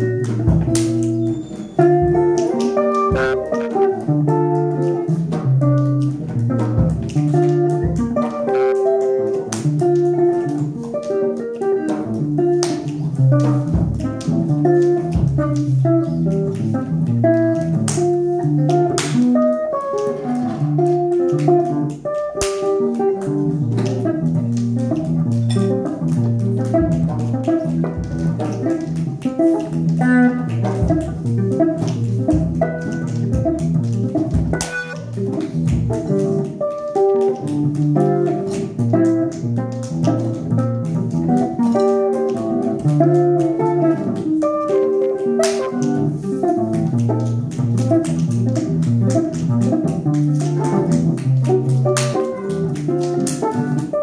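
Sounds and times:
sharp percussive hits: 0:00.0 - 0:03.9
guitar: 0:00.0 - 0:54.0.

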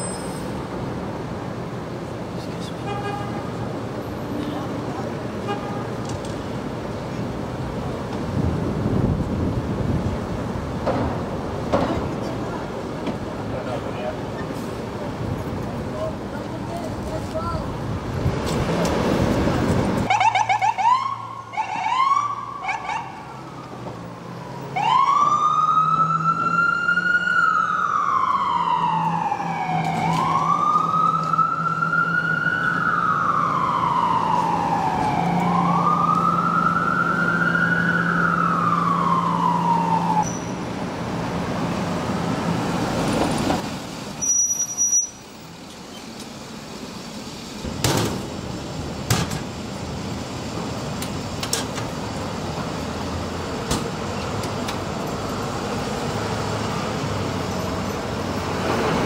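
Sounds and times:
street traffic noise: 0:00.0 - 0:59.0
ambulance siren wailing: 0:20.1 - 0:23.8, 0:24.6 - 0:40.5.

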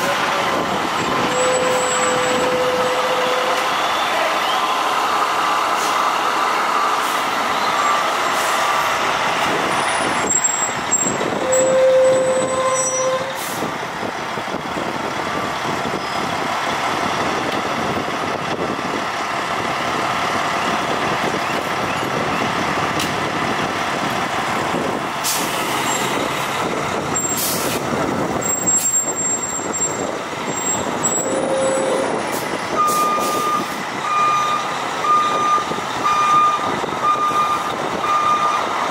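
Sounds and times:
diesel engines running: 0:00.0 - 0:38.9
horn-like tone: 0:01.3 - 0:04.0, 0:11.4 - 0:13.4, 0:31.0 - 0:32.2
reversing beeper: 0:01.3 - 0:05.0, 0:06.6 - 0:09.0, 0:30.6 - 0:38.7
air brakes hissing: 0:05.7 - 0:06.0, 0:07.0 - 0:07.3, 0:08.2 - 0:08.9, 0:12.4 - 0:13.7, 0:25.2 - 0:26.2, 0:27.2 - 0:27.9, 0:31.2 - 0:33.8.

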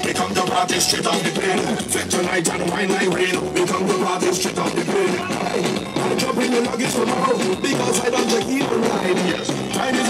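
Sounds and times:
loud music with steady beat: 0:00.0 - 0:10.0
person singing: 0:00.0 - 0:10.0.

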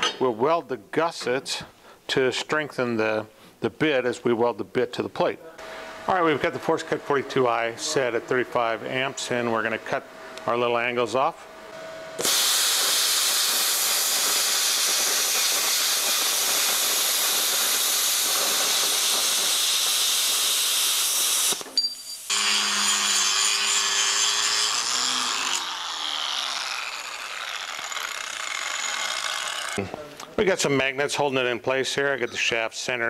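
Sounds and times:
faint hum: 0:04.6 - 0:12.2
plasma cutter arc hissing: 0:12.2 - 0:23.5.

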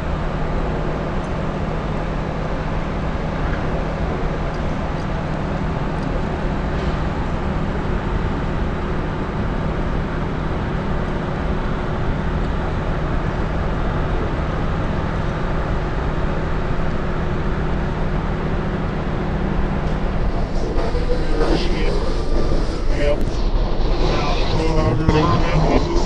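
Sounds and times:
city street traffic rumble: 0:00.0 - 0:26.0
faint hum: 0:00.0 - 0:26.0.

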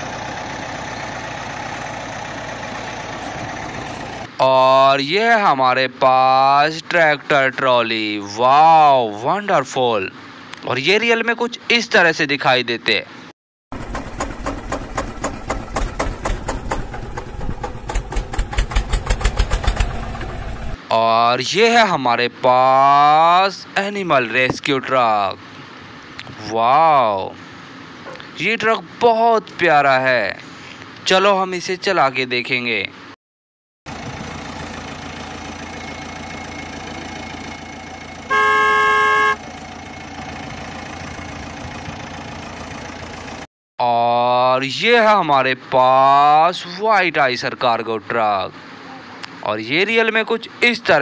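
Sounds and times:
diesel tractor engine knocking: 0:00.0 - 0:04.3, 0:13.7 - 0:20.8, 0:33.9 - 0:43.4
truck horn blast: 0:37.8 - 0:39.6.

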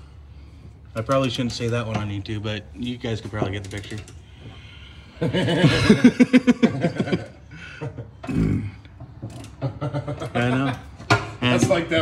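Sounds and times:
man laughing hard: 0:05.2 - 0:08.5.

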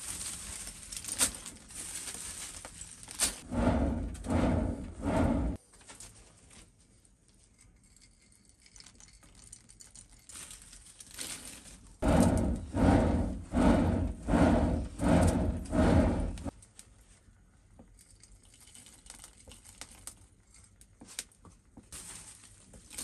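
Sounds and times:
charcoal rustling: 0:00.0 - 0:05.0, 0:22.0 - 0:23.0
bellows blowing air: 0:12.0 - 0:16.5.

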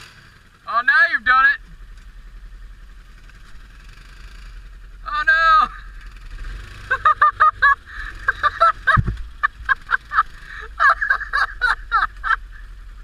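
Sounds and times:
person cackling with laughter: 0:06.8 - 0:12.7
dull thump: 0:08.9 - 0:09.4.

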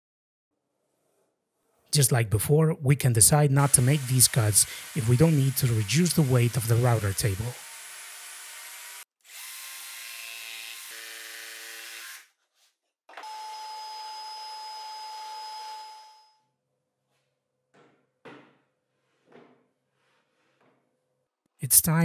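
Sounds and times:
table saw running: 0:03.6 - 0:09.0
power tool running steadily: 0:03.6 - 0:12.2
plywood parts knocking: 0:17.8 - 0:18.6.

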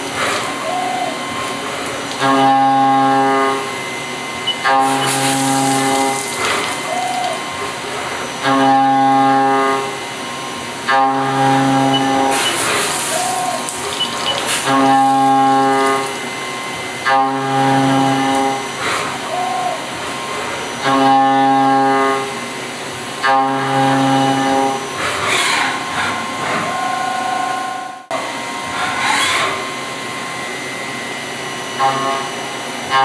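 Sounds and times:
spindle and coolant running: 0:00.0 - 0:26.4
milling machine cutting plastic: 0:01.3 - 0:09.9, 0:10.8 - 0:19.0
short bursts of hiss: 0:04.8 - 0:06.3.

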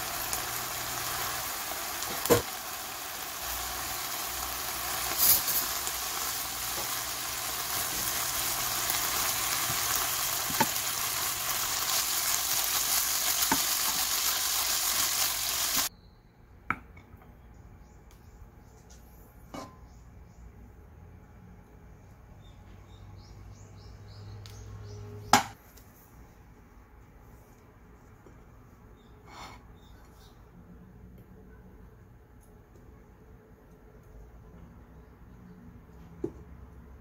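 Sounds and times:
pork sizzling in a pan: 0:00.0 - 0:15.9.

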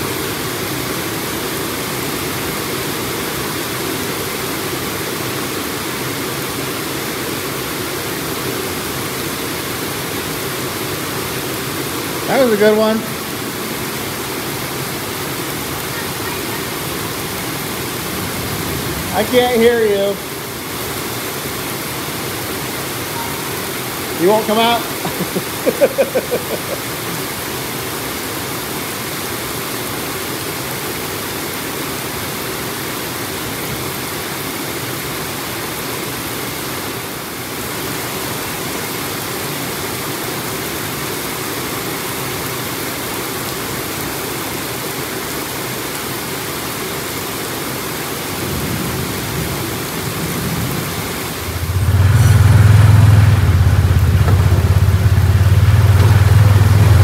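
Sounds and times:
heavy rain pouring: 0:00.0 - 0:57.0
loud low rumble: 0:51.0 - 0:57.0.

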